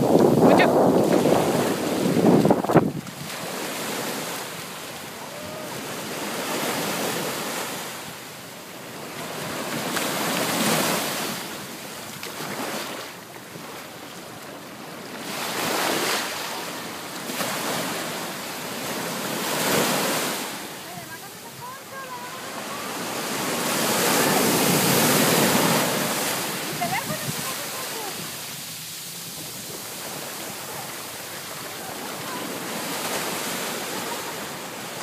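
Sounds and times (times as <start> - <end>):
wind buffeting microphone: 0.0 - 3.3, 23.6 - 28.7
sea waves washing on beach: 0.0 - 35.0.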